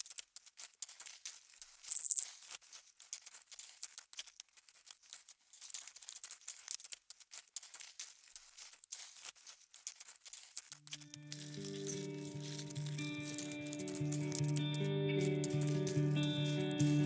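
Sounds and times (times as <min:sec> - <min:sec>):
crackling and rustling of grass: 0:00.0 - 0:17.0
music: 0:10.9 - 0:17.0.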